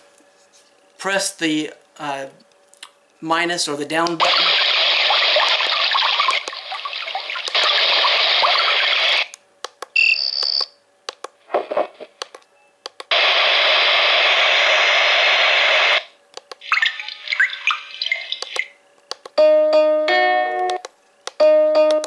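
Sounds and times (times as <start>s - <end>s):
steady noise track: 3.8s - 9.4s, 11.1s - 19.4s
hiss-like sleep sound from speaker: 13.1s - 16.2s.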